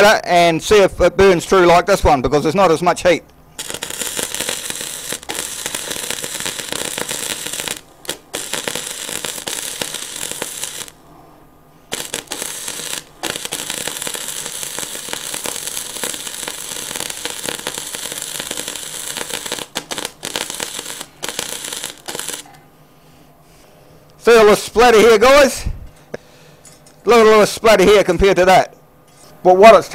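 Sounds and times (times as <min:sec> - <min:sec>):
welding arc crackling and spitting: 0:03.6 - 0:11.0, 0:11.9 - 0:22.5.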